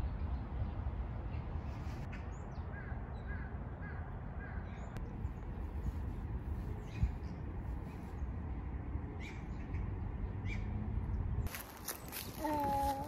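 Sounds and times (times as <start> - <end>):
steady low rumble: 0.0 - 10.4.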